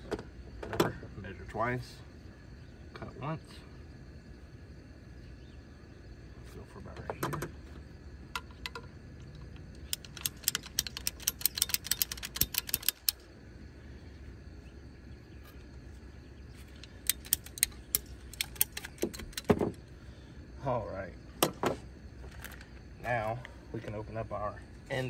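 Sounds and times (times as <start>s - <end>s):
ratcheting hose cutter clicking: 8.4s - 13.2s, 16.8s - 19.6s.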